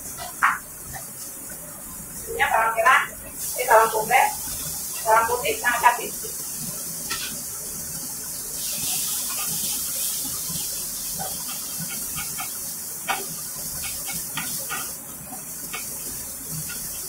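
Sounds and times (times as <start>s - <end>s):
food sizzling in a wok: 0.0s - 17.0s.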